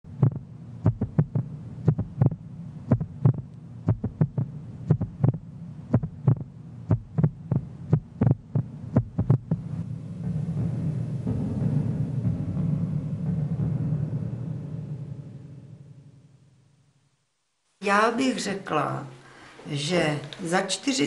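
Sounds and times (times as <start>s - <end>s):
heartbeat thumps: 0.0s - 15.4s
low steady hum: 0.0s - 21.0s.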